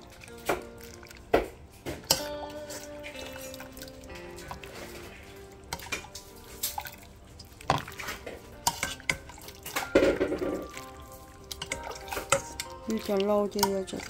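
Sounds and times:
broth sloshing: 0.0s - 14.0s
utensils clicking against ceramic bowl: 8.6s - 9.9s, 10.6s - 14.0s.

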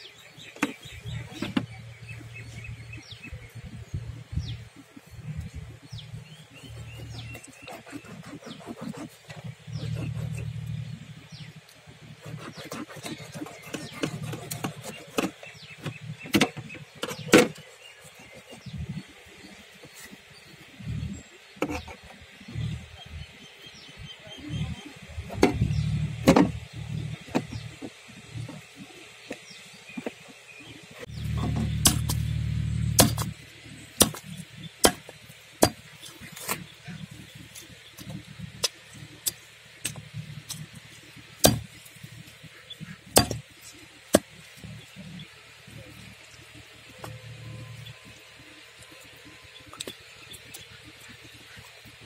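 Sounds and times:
low uneven rumble: 0.2s - 16.9s, 17.8s - 29.9s, 30.6s - 52.0s
cleaver chopping onto wooden block: 31.2s - 32.2s, 32.9s - 33.3s, 34.0s - 36.6s, 41.4s - 41.7s, 43.1s - 43.5s
knife chopping on steel plate: 41.4s - 41.7s, 43.2s - 43.4s.

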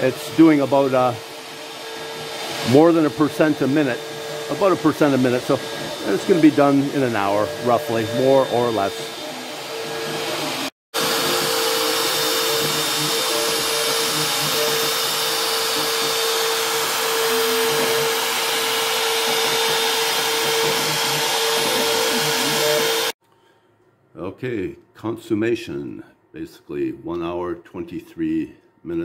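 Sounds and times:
router motor whine carving foam: 0.0s - 23.2s.

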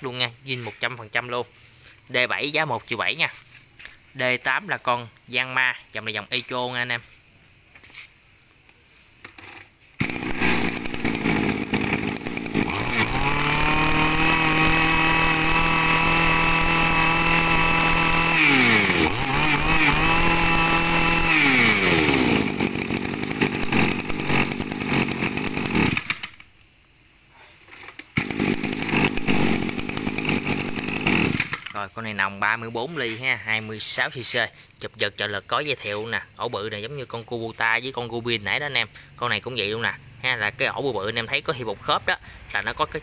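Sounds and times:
brush cutter engine revving: 9.2s - 26.4s, 27.9s - 31.9s.

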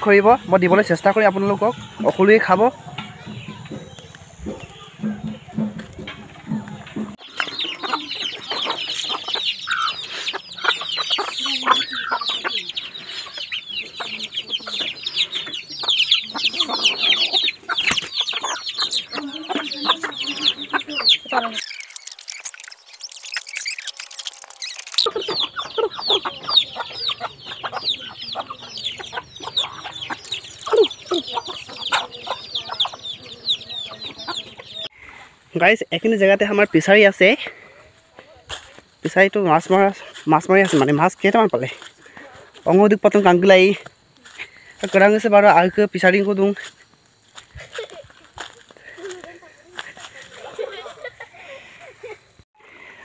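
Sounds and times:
chicks peeping: 0.0s - 53.0s
hens clucking: 0.0s - 53.0s.

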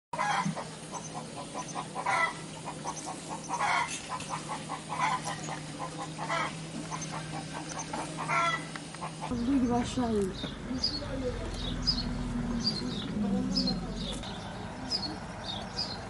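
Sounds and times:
loud poultry call: 0.2s - 9.4s
chickens clucking: 0.2s - 10.0s.

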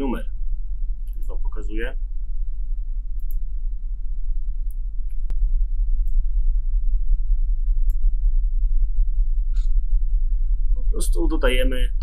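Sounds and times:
low mains hum: 0.0s - 12.0s
sharp click: 3.2s - 3.4s.

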